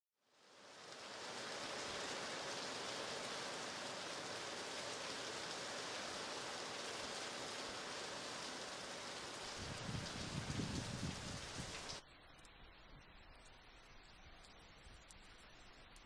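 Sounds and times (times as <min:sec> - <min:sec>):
steady rainfall: 0:00.2 - 0:16.0.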